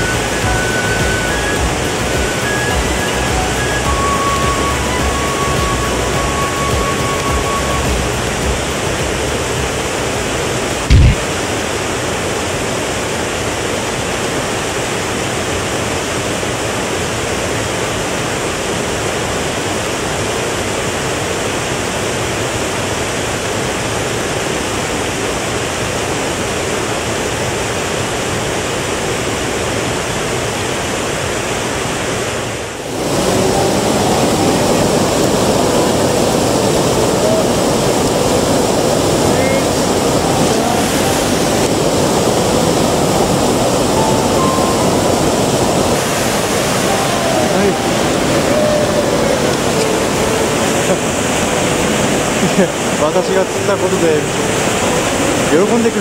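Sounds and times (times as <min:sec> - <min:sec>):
river water rushing over weir: 0:00.0 - 0:56.0
low thump: 0:10.9 - 0:11.2.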